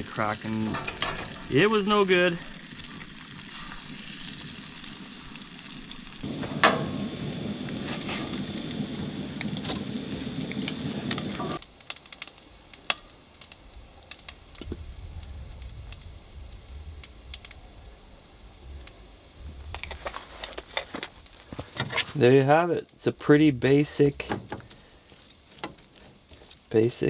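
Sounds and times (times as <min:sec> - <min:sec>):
eggs sizzling in a pan: 0:00.0 - 0:14.8.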